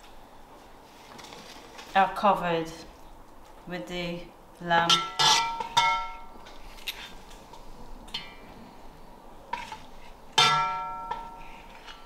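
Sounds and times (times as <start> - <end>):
spoon scraping a pot: 5.0 - 5.8.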